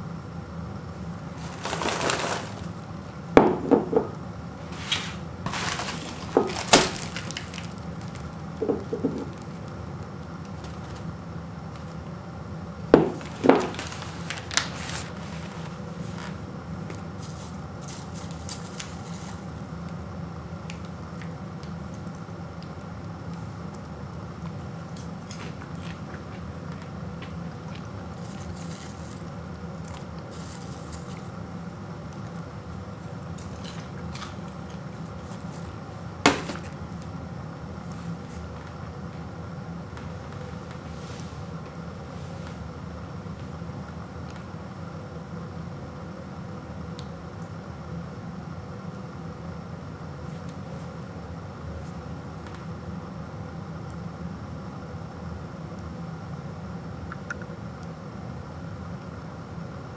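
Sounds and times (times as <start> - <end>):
steady low hum: 0.0 - 59.9
hand rummaging through popcorn: 1.1 - 3.0, 4.6 - 9.7, 10.4 - 11.1, 13.0 - 19.7, 24.9 - 31.4, 33.0 - 36.9
paper bag rustling and crinkling: 1.2 - 2.9, 4.6 - 8.5, 10.5 - 11.1, 13.0 - 19.6, 25.2 - 31.4, 33.0 - 37.0
knocks on wooden floor: 3.4 - 4.1, 8.6 - 9.3, 13.0 - 13.7.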